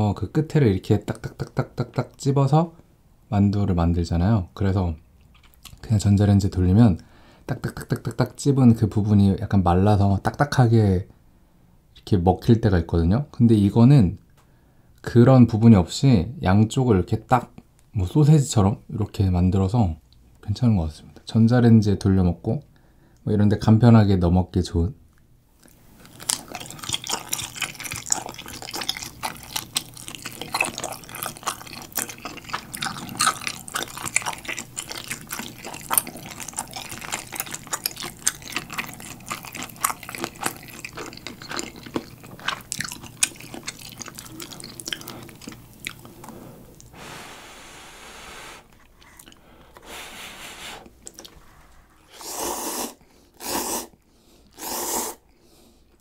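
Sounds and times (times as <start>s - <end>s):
chewing with mouth clicks: 5.2s - 5.8s, 25.6s - 46.9s, 48.8s - 49.4s, 50.8s - 51.4s
loud noodle slurps: 52.0s - 54.0s, 54.6s - 55.2s.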